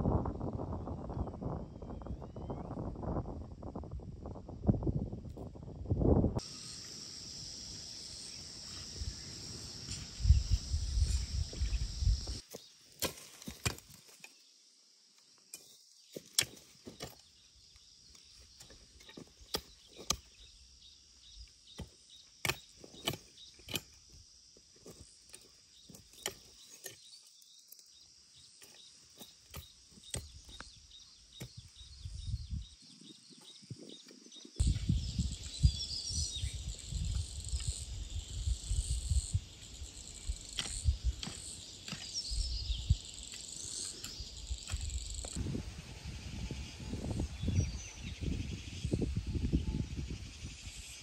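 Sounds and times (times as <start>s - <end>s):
high-pitched hiss: 6.4s - 12.5s.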